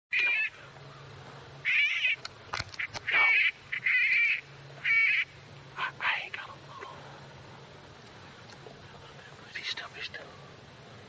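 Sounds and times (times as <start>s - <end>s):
wavering animal distress cry: 0.1s - 0.7s, 1.6s - 2.2s, 2.8s - 5.4s.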